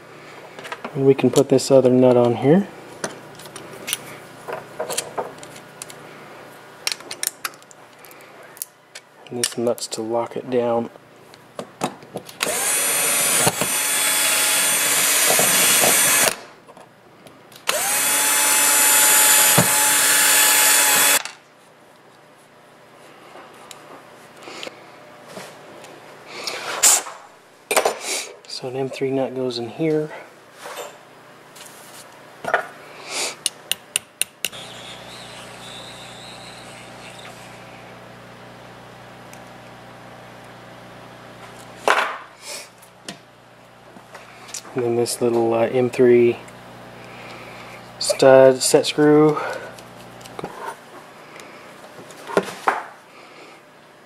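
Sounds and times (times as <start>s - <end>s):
cordless drill drilling plastic: 12.4s - 16.4s, 17.7s - 21.2s, 34.5s - 38.2s.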